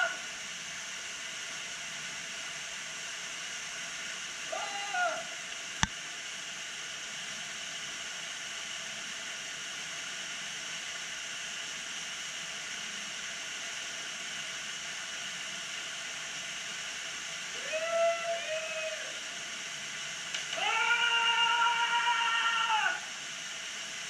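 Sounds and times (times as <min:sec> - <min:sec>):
waterfall rushing: 0:10.1 - 0:24.0.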